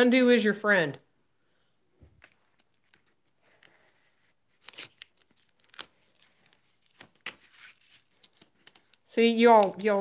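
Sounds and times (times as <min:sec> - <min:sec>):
card peeled off adhesive tape: 0:04.5 - 0:10.0.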